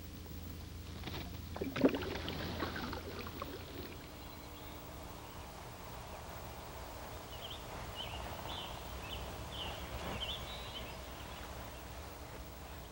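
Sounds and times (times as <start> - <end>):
low background hum: 0.0 - 12.9
bird chirping: 7.2 - 11.9.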